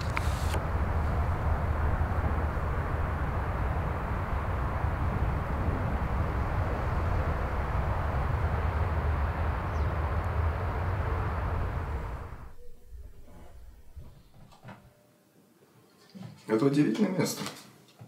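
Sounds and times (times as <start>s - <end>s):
wind buffeting microphone: 0.0s - 12.6s
steady wind: 0.0s - 14.4s.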